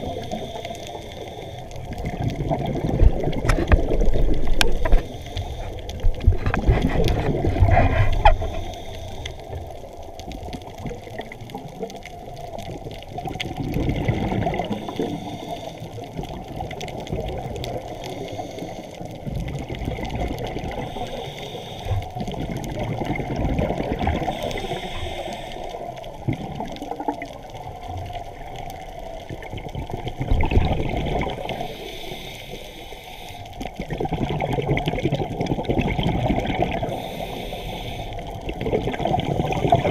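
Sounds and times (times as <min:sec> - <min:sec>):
low water rumble: 0:00.0 - 0:39.9
underwater exhaust bubbles: 0:00.0 - 0:39.9.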